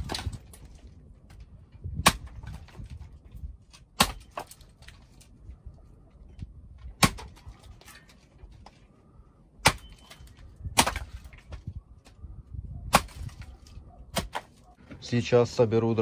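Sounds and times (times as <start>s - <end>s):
axe splitting firewood: 0.0s - 5.3s, 6.6s - 8.8s, 9.6s - 12.2s, 12.9s - 14.7s.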